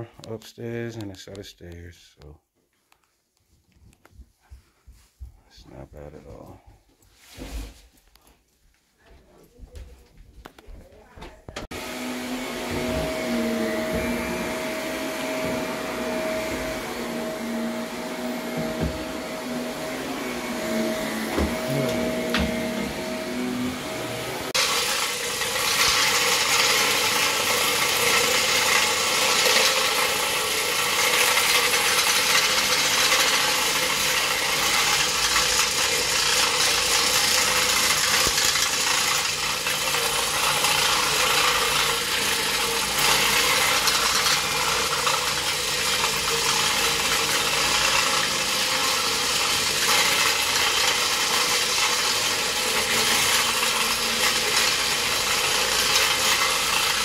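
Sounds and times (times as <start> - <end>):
floor machine scrubbing carpet: 11.6 - 57.0.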